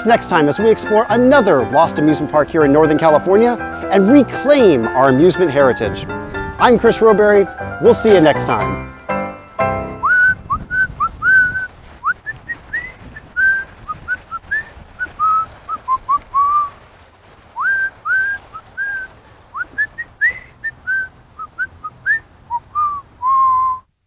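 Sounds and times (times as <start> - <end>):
person whistling a tune: 9.9 - 13.7, 14.3 - 16.7, 17.6 - 23.9.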